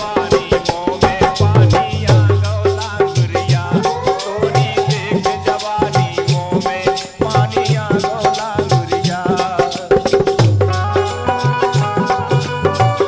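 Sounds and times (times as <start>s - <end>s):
hand drum beats: 0.0s - 13.0s
tambourine jingles: 0.0s - 13.0s
harmonium melody: 7.8s - 13.0s.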